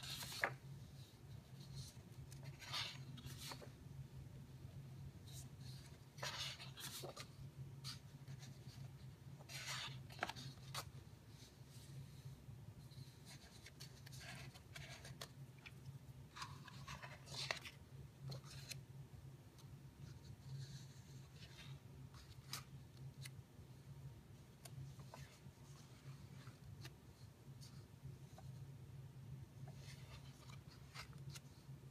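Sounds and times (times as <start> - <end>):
book pages turning: 0.0 - 3.8, 5.3 - 11.9, 12.9 - 18.8, 20.4 - 23.4, 24.6 - 27.2, 29.6 - 31.6
low steady hum: 0.0 - 31.9.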